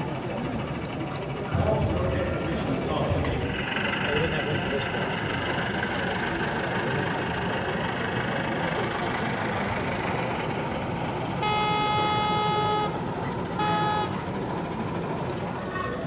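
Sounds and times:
hall background noise: 0.0 - 16.0
model locomotive whistle toots: 11.4 - 13.0, 13.6 - 14.2.

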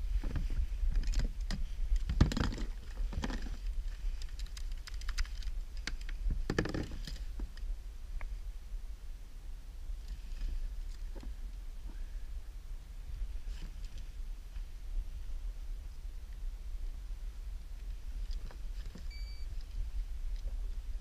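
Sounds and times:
steady low rumble: 0.0 - 21.0
gear clicking and rattling in kayak: 0.2 - 7.7.

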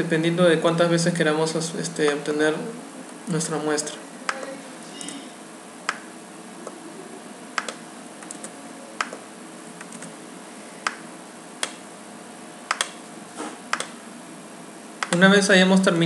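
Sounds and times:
mouse and keyboard clicks: 7.6 - 9.2, 12.7 - 13.0.

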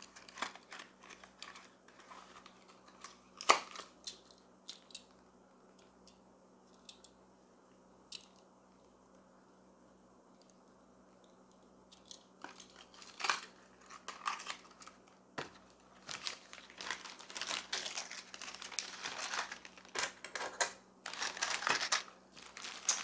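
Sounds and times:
plastic packaging crinkling: 0.0 - 4.0, 12.4 - 23.0.

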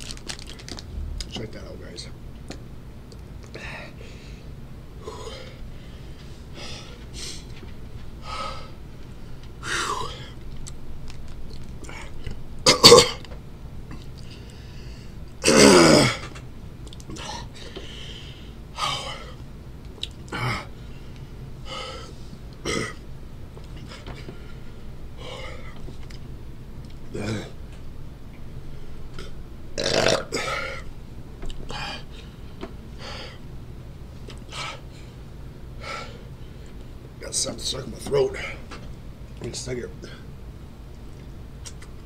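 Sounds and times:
vocal sound falling in pitch: 0.8 - 1.4
man breathing hard: 3.5 - 7.5, 8.2 - 10.4, 14.2 - 15.2, 17.2 - 19.4, 20.3 - 22.4, 23.8 - 25.8, 31.7 - 33.5, 34.5 - 36.7
man clearing throat: 12.7 - 13.2, 22.7 - 23.0.

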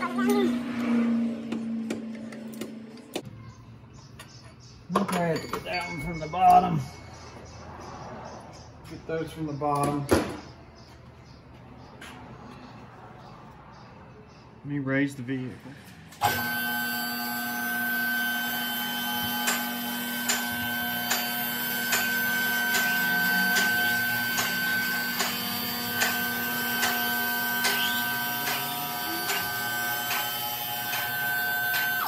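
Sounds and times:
hydraulic pump motor whine: 16.2 - 32.0.

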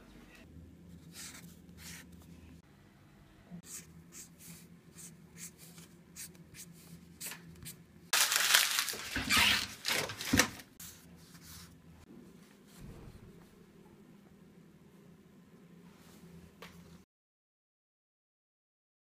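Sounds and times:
marker scratching on paper: 1.0 - 2.2, 3.6 - 7.8.

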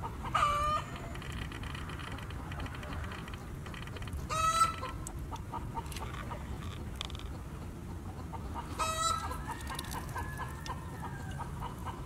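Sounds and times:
chickens clucking: 0.0 - 12.0
chicken squawk: 0.2 - 1.1, 4.3 - 5.0, 8.4 - 12.0.

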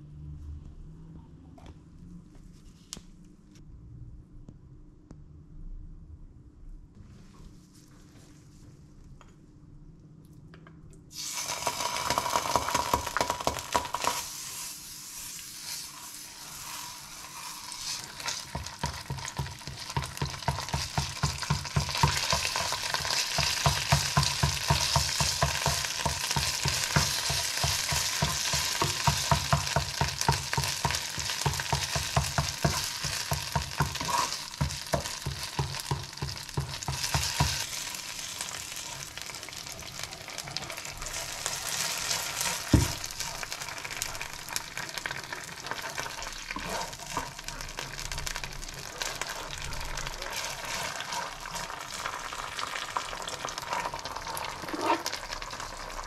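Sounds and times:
water pouring from a kettle: 11.1 - 14.2
food sizzling in oil: 11.1 - 56.0
spatula scraping a pan: 13.8 - 39.1, 40.3 - 44.1, 45.9 - 55.4.

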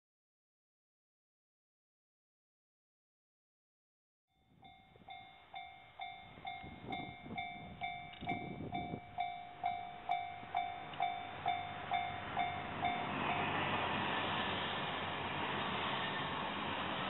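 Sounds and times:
level crossing warning bell: 4.4 - 13.8
train rushing past: 5.6 - 17.0.

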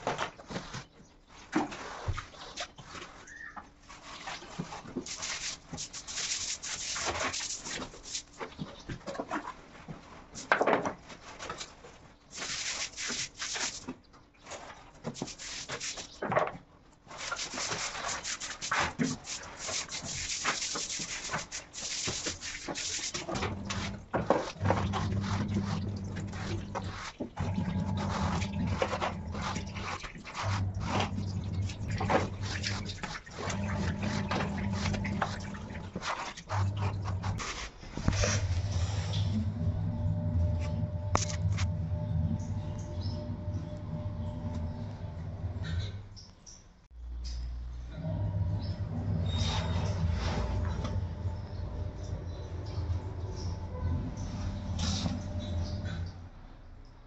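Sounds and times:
brush scrubbing wet floor: 0.0 - 16.4, 17.0 - 44.8, 49.2 - 56.1
low hum: 23.4 - 56.5.

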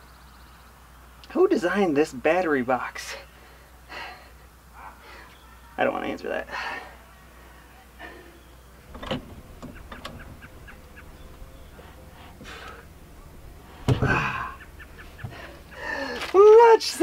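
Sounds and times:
floor jack pumping clicks: 8.9 - 16.4.

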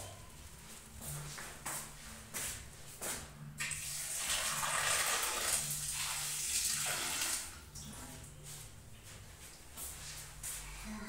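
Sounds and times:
water running from tap: 3.6 - 7.6.

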